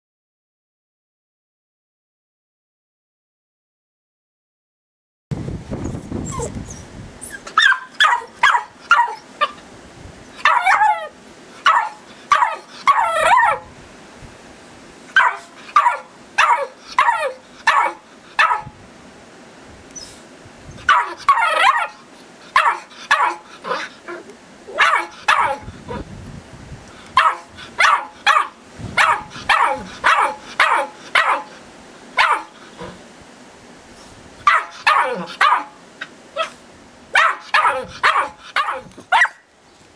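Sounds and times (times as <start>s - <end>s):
puppy yapping: 6.2s - 9.6s, 10.3s - 13.7s, 15.2s - 18.7s, 20.8s - 25.7s, 27.2s - 31.5s, 32.2s - 33.0s, 34.4s - 35.8s, 36.4s - 36.6s, 37.2s - 39.5s
puppy yelping: 6.2s - 9.6s, 10.3s - 13.7s, 15.2s - 18.7s, 20.8s - 22.0s, 22.6s - 26.0s, 27.2s - 31.5s, 32.2s - 33.0s, 34.4s - 35.8s, 36.4s - 36.6s, 37.2s - 39.5s.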